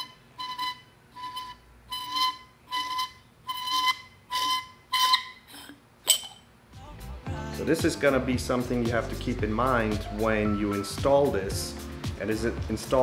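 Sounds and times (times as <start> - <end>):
metal can squealing: 0.0 - 6.4.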